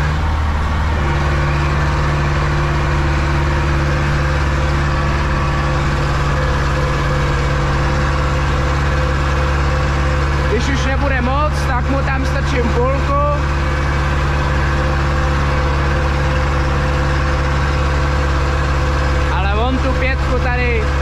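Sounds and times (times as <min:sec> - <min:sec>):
tractor diesel engine running: 0:00.0 - 0:21.0.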